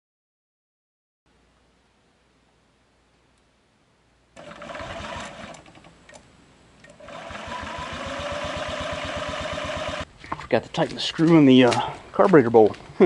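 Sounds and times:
scooter engine starting: 0:04.4 - 0:06.2, 0:06.8 - 0:10.1.

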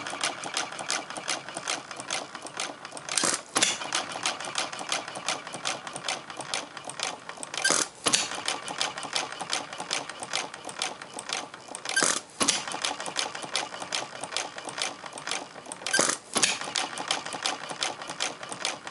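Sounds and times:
engine mechanical clatter: 0:00.0 - 0:18.9.

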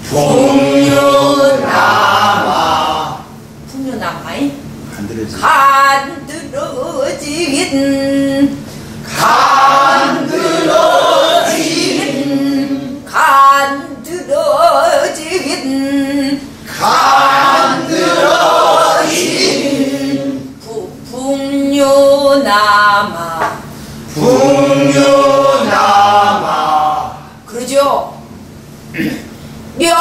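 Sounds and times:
group singing together: 0:00.0 - 0:03.4, 0:05.4 - 0:27.4
woman singing: 0:05.4 - 0:08.6, 0:13.1 - 0:16.5, 0:20.6 - 0:23.6.

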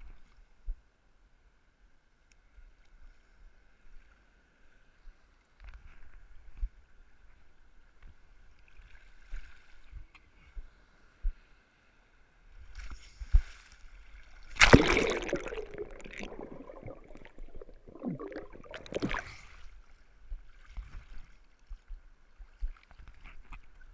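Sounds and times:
sea water sloshing and splashing: 0:13.4 - 0:19.9
underwater gurgling: 0:14.5 - 0:19.6.

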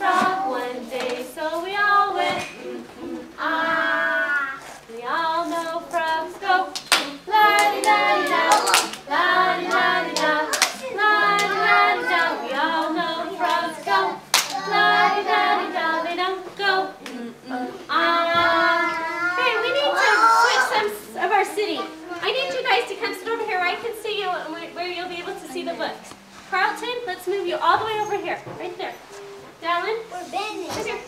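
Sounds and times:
children singing: 0:00.0 - 0:25.8
hand claps: 0:06.7 - 0:11.6, 0:14.3 - 0:14.6.

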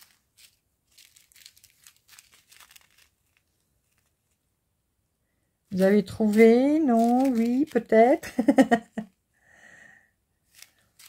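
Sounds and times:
plastic bag crinkling: 0:00.0 - 0:04.4, 0:05.7 - 0:08.8, 0:10.4 - 0:11.0.

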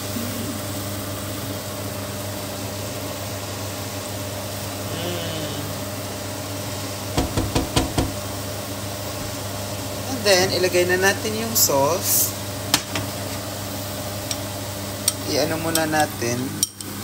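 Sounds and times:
stir-fry sizzling in a wok: 0:00.0 - 0:17.0
spatula knocking on a wok: 0:07.2 - 0:08.2.

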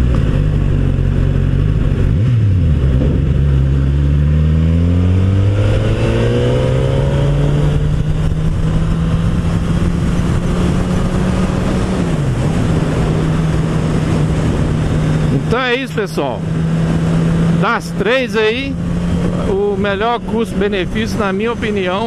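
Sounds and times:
motorcycle engine: 0:00.0 - 0:22.0.

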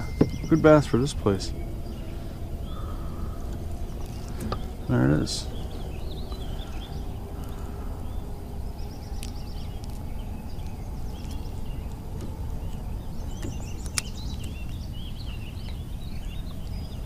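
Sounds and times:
buzzy bird trills: 0:00.0 - 0:17.0
low outdoor rumble: 0:00.0 - 0:17.0
songbirds chirping: 0:00.0 - 0:17.0
light clicks: 0:09.1 - 0:14.8.

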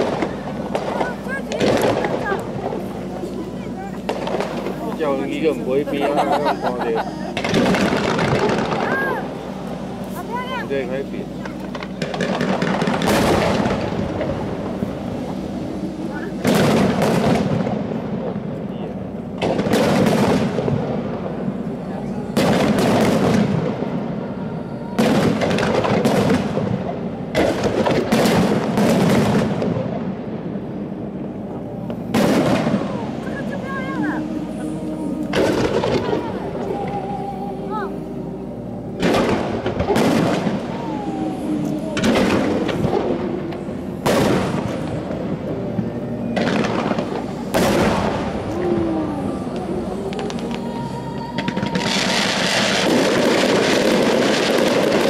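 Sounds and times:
firework crackling: 0:00.0 - 0:55.0
firework shells bursting: 0:07.4 - 0:10.2.

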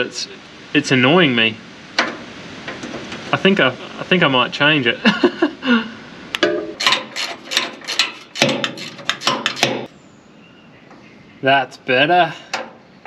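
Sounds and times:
metallic clicks and knocks: 0:06.4 - 0:09.9, 0:12.5 - 0:12.8.

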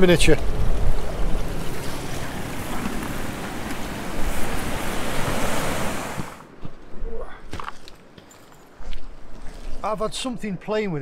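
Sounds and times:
sea surf over rocks: 0:00.0 - 0:06.5
wind buffeting microphone: 0:00.0 - 0:07.2.

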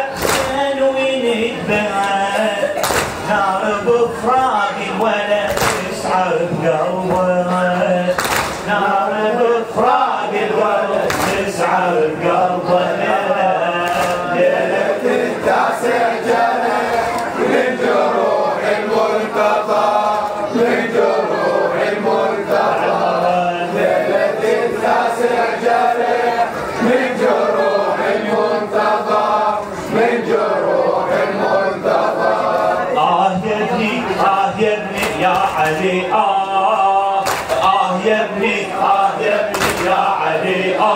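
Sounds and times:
man chanting into microphone: 0:00.0 - 0:14.6, 0:32.8 - 0:40.9
men chanting in chorus: 0:00.0 - 0:40.9
sharp slaps: 0:00.2 - 0:00.6, 0:02.8 - 0:03.2, 0:05.5 - 0:05.9, 0:08.1 - 0:08.7, 0:11.0 - 0:11.5, 0:13.8 - 0:14.2, 0:37.2 - 0:37.6, 0:39.5 - 0:40.0.

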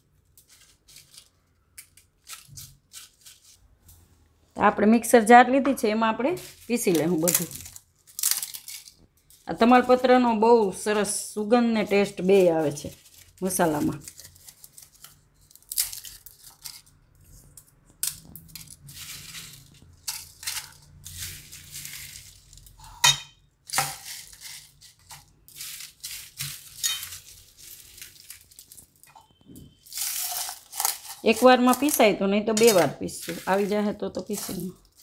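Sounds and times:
dry spices clattering into metal jar: 0:06.4 - 0:10.4, 0:11.9 - 0:35.0
spices clinking against metal: 0:17.5 - 0:35.0.

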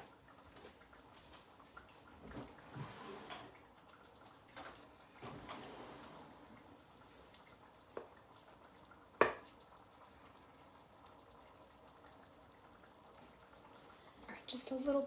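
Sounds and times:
sauce simmering in a pan: 0:00.0 - 0:15.0.

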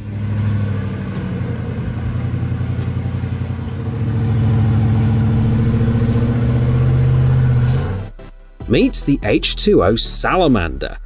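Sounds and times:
engine running under load: 0:00.0 - 0:08.2.

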